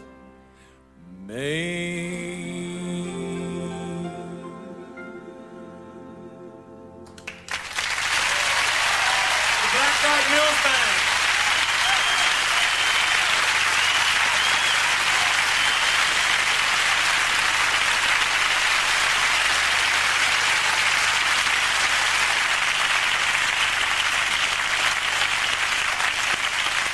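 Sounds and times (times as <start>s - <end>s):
audience applauding: 7.1s - 26.9s
short high whistles: 11.8s - 16.5s.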